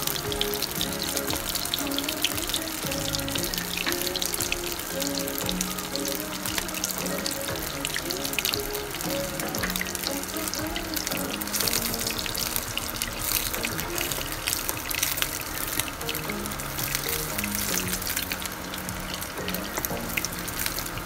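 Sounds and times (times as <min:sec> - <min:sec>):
background music: 0:00.0 - 0:21.0
hot oil sizzling and crackling: 0:00.0 - 0:21.0.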